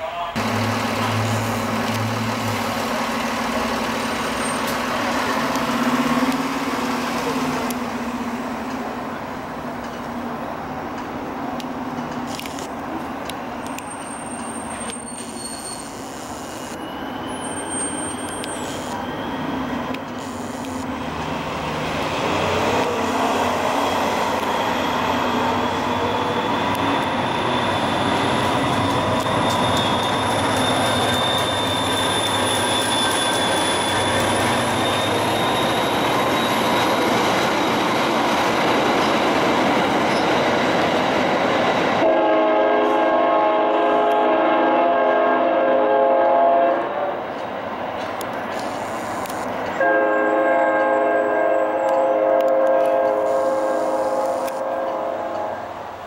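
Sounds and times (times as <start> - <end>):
train engine and wheels rumbling: 0.0 - 56.0
train horn chord: 42.0 - 46.9, 49.8 - 55.7.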